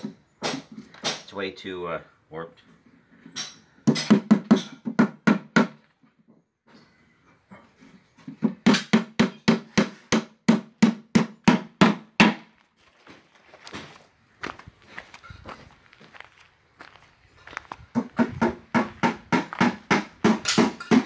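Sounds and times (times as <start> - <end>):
hammer striking nail into wood: 0.0 - 1.3, 3.4 - 5.8, 8.6 - 12.5, 18.0 - 21.0.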